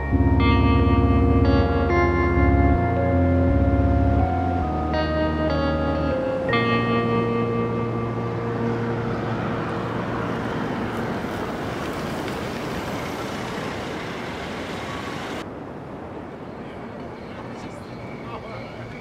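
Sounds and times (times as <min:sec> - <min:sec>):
sustained music chord: 0:00.0 - 0:10.9
car engine and tyre noise: 0:00.0 - 0:15.5.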